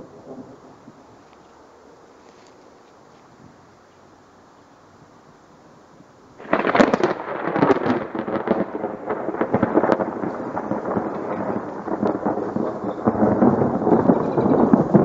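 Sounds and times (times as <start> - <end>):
thunder rumbling: 0.0 - 1.2, 6.4 - 15.0.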